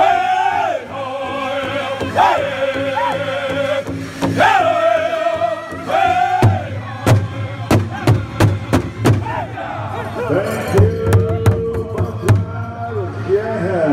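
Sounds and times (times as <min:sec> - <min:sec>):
group singing high-pitched song: 0:00.0 - 0:12.1.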